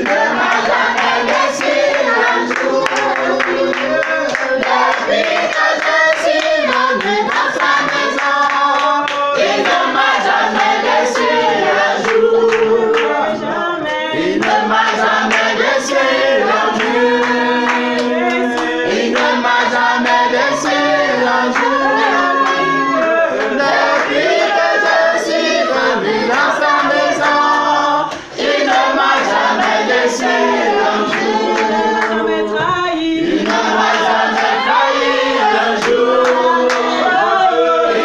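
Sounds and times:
hand clapping: 0:00.0 - 0:11.4, 0:12.0 - 0:20.8, 0:21.4 - 0:24.9, 0:33.4 - 0:34.6, 0:35.8 - 0:37.0
group singing a worship song: 0:00.0 - 0:38.0.

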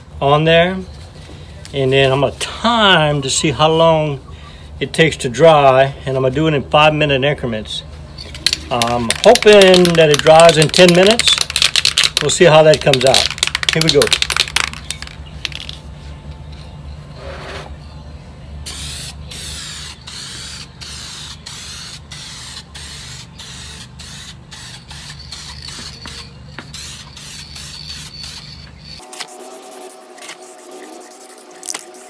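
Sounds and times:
aerosol spray can hissing: 0:18.7 - 0:28.6.

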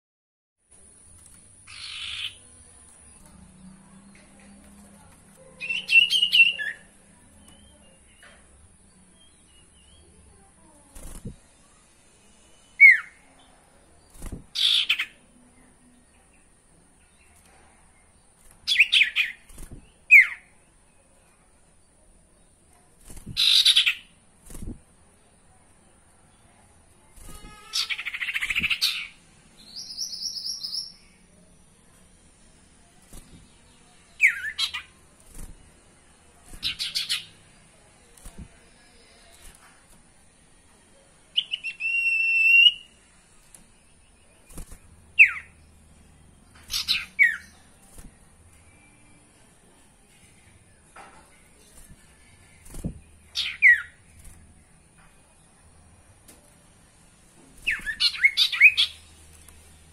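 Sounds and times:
rapid bird chattering: 0:01.6 - 0:02.5, 0:14.5 - 0:15.2, 0:23.3 - 0:24.1, 0:46.7 - 0:47.5
bird harsh chatter: 0:23.3 - 0:24.1.

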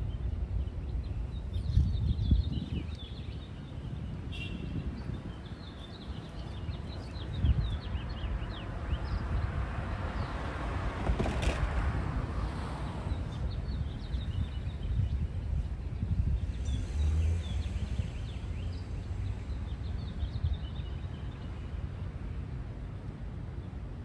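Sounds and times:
small birds chirping: 0:00.0 - 0:09.5, 0:13.1 - 0:21.8.

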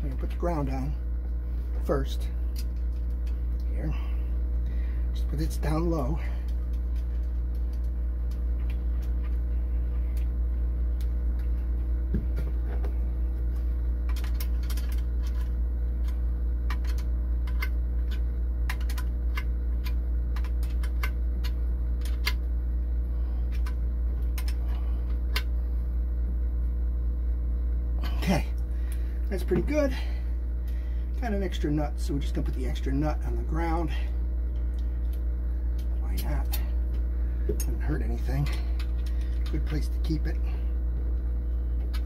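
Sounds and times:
low machine hum: 0:00.0 - 0:42.0.

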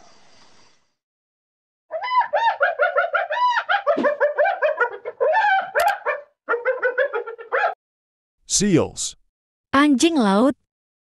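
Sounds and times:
hyena giggling: 0:06.5 - 0:07.7.

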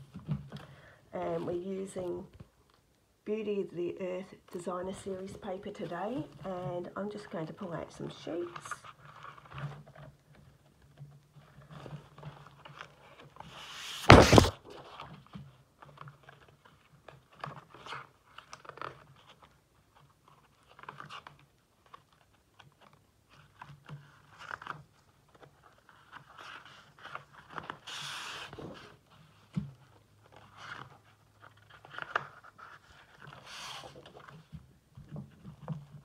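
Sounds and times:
paper sheets rustling: 0:11.4 - 0:15.1
loud thump: 0:14.0 - 0:14.6.

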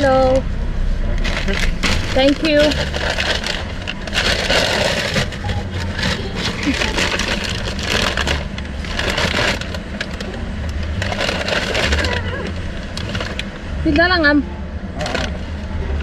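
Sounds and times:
car engine idling: 0:00.0 - 0:16.0
paper bag rustling: 0:01.2 - 0:13.6.

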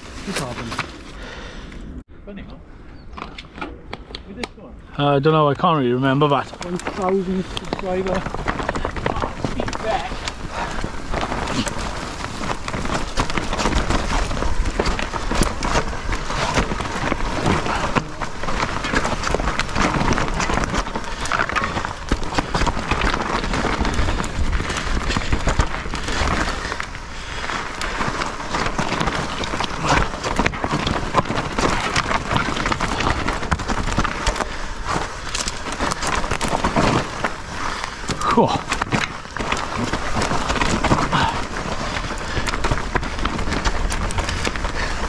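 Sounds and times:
wind buffeting: 0:01.4 - 0:45.0
bike knocking and rattling: 0:03.1 - 0:45.0
tyre and riding noise: 0:05.0 - 0:45.0.

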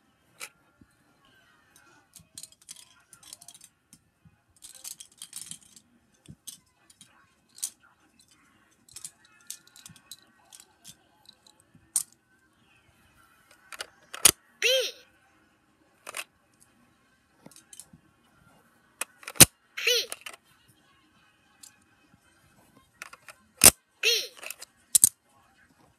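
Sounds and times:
toys clicking and rattling: 0:01.8 - 0:03.7, 0:04.6 - 0:12.2, 0:13.5 - 0:14.9, 0:16.0 - 0:16.2, 0:17.4 - 0:18.0, 0:19.0 - 0:20.4, 0:23.0 - 0:25.1.

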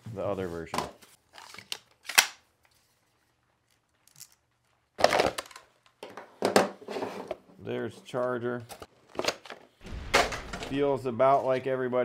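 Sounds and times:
knocks and clatter of tool handling: 0:05.0 - 0:07.6.

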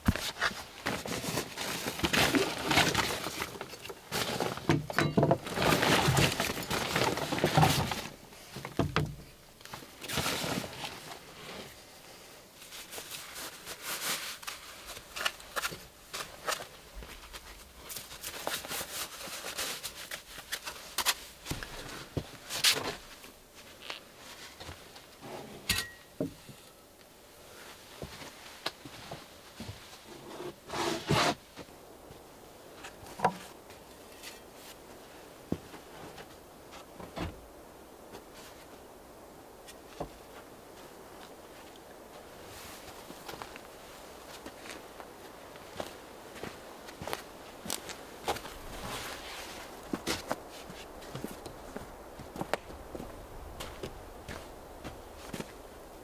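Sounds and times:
backpack fabric rustling: 0:45.6 - 0:53.1.

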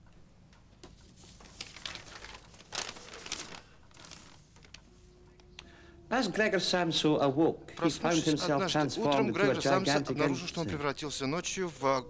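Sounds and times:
paper rustling: 0:00.8 - 0:05.1.

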